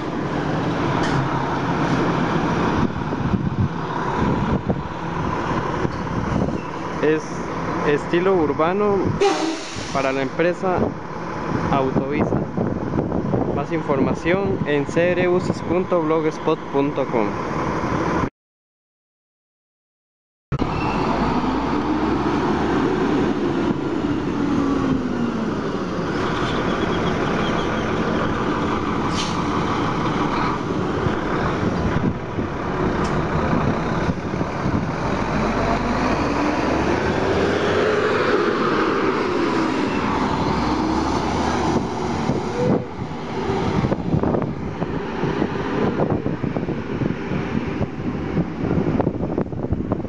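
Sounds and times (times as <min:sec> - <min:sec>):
bus diesel engine revving: 0:20.6 - 0:49.4.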